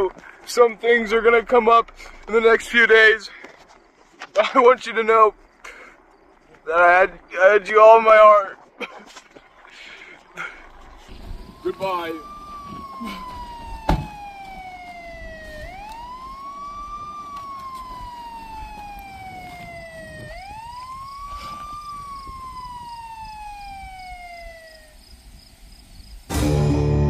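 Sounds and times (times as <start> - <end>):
emergency vehicle siren wailing: 10.4 - 25.0.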